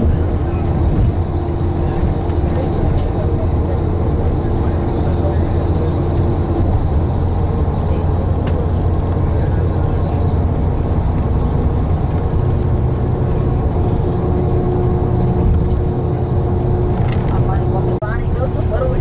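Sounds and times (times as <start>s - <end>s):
engine and road rumble: 0.0s - 19.0s.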